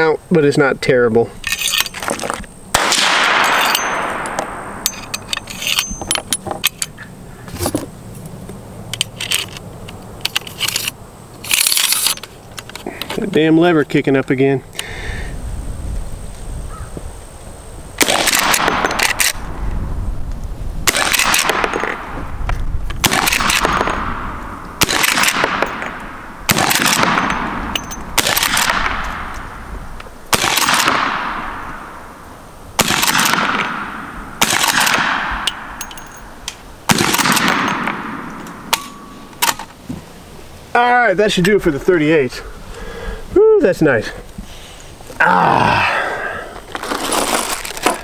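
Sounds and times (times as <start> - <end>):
rifle shots echoing: 2.7 - 5.1, 18.0 - 19.4, 20.9 - 22.2, 23.0 - 29.6, 30.3 - 32.0, 32.8 - 35.8, 36.9 - 39.3.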